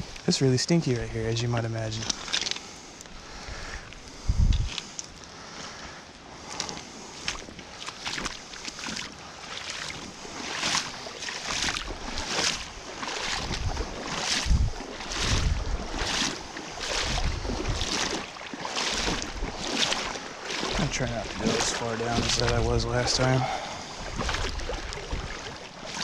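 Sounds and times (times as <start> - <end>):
wind gusting on microphone: 3.2 - 4.9, 11.8 - 18.2, 20.7 - 25.6
river water rushing: 6.6 - 26.0.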